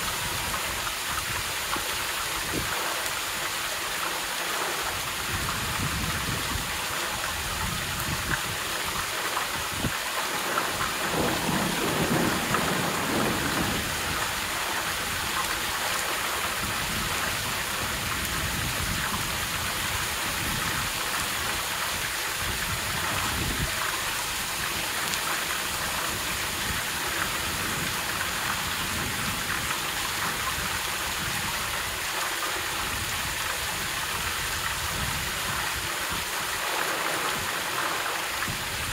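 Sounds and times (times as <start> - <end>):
heavy rainfall: 0.0 - 38.9
thunder rumble: 10.9 - 15.6.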